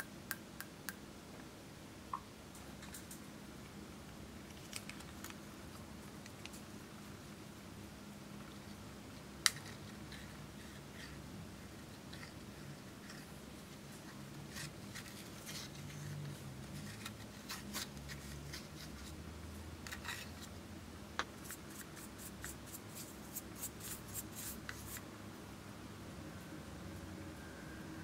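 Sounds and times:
spatula scraping powder makeup: 21.4s - 25.0s.

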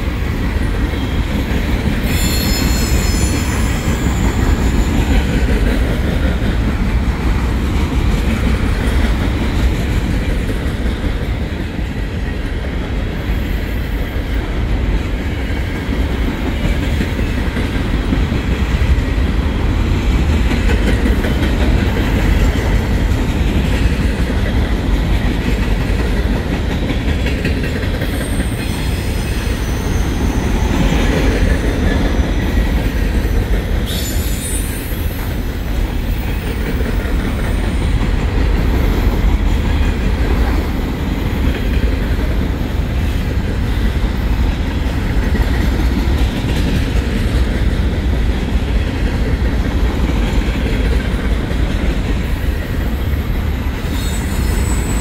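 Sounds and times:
train wheels rumbling on rails: 0.0s - 55.0s
high wheel squeal: 2.0s - 5.2s, 28.1s - 31.0s, 33.9s - 35.2s, 53.8s - 55.0s.

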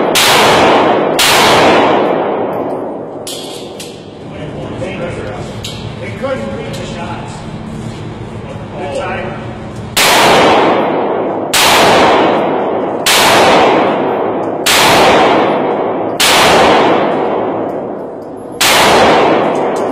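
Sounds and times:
handgun shots: 0.0s - 4.1s, 10.0s - 19.9s.

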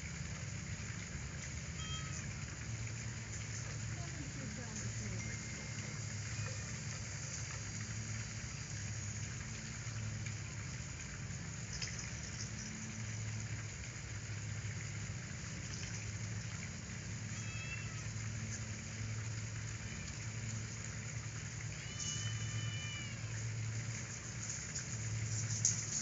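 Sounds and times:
steady background hiss: 0.0s - 26.0s
faint ticks: 1.4s - 16.8s, 23.1s - 26.0s.

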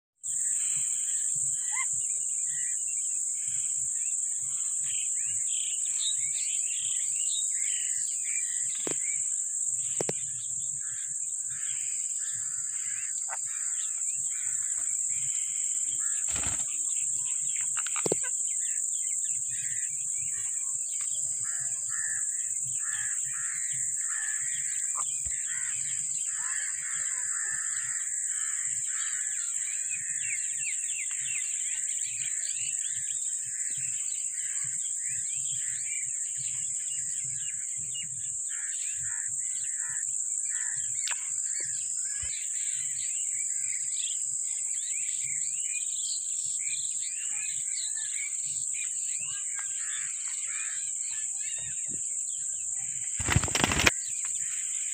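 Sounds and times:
steady high-pitched hiss: 0.3s - 54.9s
parakeets chirping and chattering: 53.2s - 54.0s.

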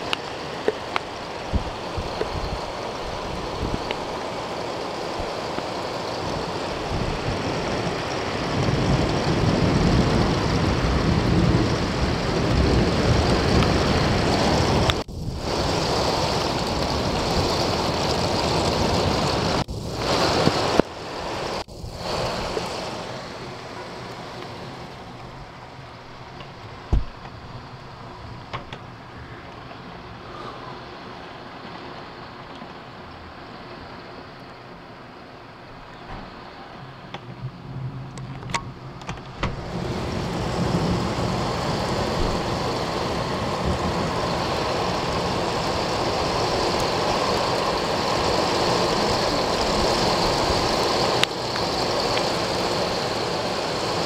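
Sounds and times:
heavy rain: 0.0s - 54.0s
storm wind: 0.0s - 54.0s
short thump: 26.9s - 27.3s.

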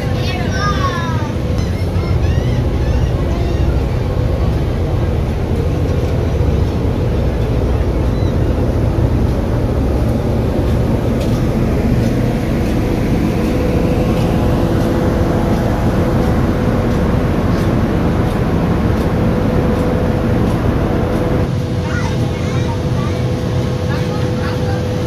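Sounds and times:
ship engines rumbling: 0.0s - 25.0s
water washing past: 2.6s - 21.8s.

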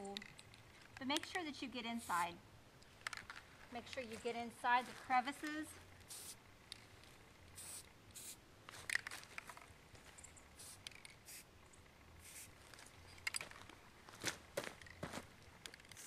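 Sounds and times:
small clicks and rustles: 0.0s - 1.6s, 2.8s - 6.1s, 6.7s - 7.2s, 8.6s - 16.0s
spray can hissing: 1.9s - 2.3s, 6.0s - 6.4s, 7.5s - 8.4s, 10.6s - 11.5s, 12.2s - 12.6s.

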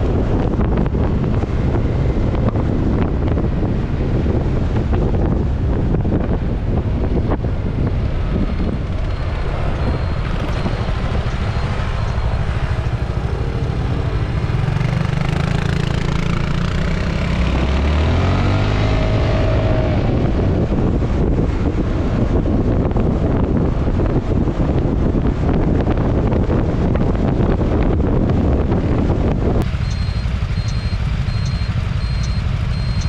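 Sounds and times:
wind rushing over microphone: 0.0s - 33.0s
scooter engine: 8.1s - 17.6s, 29.6s - 33.0s.

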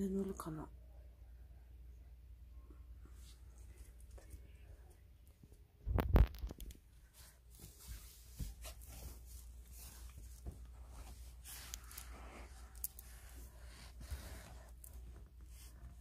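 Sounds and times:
cat scratching fabric: 7.1s - 16.0s.

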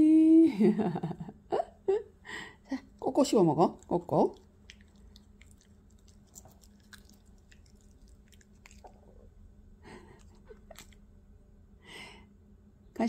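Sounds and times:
dog chewing: 3.5s - 11.1s.

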